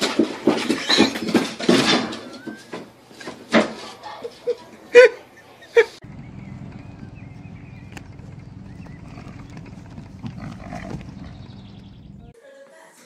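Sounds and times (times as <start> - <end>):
low rumble: 6.0 - 12.4.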